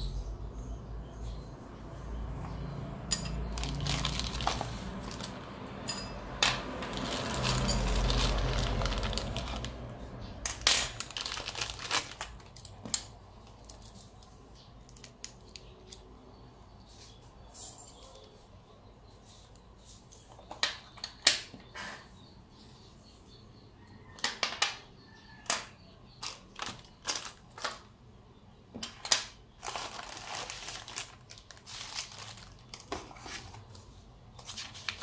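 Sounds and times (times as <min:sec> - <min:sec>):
plastic bag crinkling: 0:03.5 - 0:05.5, 0:06.9 - 0:09.9, 0:10.8 - 0:12.6, 0:26.2 - 0:27.8, 0:29.6 - 0:33.7, 0:34.4 - 0:35.0
metal rings clicking and knocking: 0:05.8 - 0:08.7.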